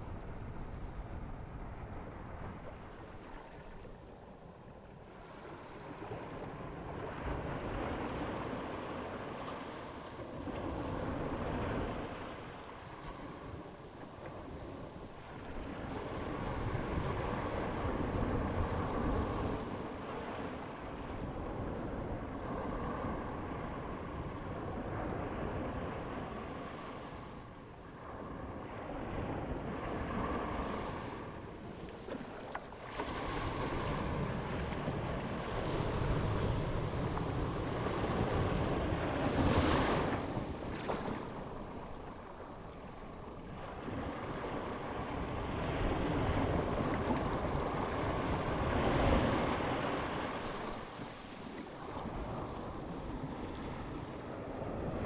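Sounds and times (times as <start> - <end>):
sea waves breaking: 28.0 - 55.0.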